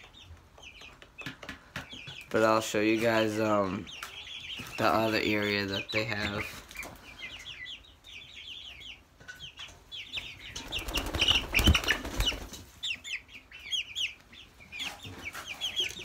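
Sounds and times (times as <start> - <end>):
chicks peeping: 0.0 - 16.0
wings flapping and rustling: 10.5 - 12.9.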